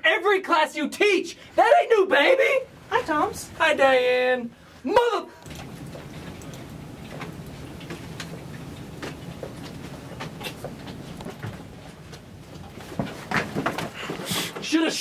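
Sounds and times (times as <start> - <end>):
steady low hum: 2.6 - 14.4.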